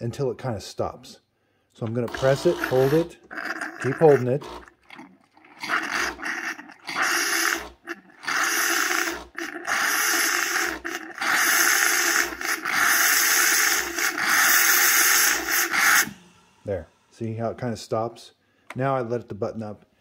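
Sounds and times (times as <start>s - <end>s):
sputtering steam: 5.6s - 17.3s
steam hissing from frothing nozzle: 8.2s - 16.8s.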